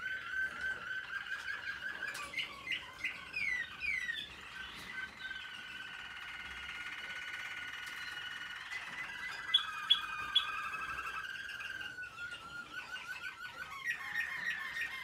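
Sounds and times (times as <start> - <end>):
canaries singing: 0.0 - 15.0.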